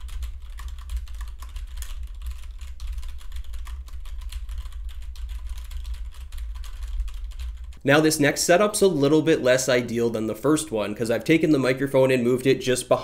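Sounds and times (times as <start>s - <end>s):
low rumble of desk vibration: 0.0s - 7.8s.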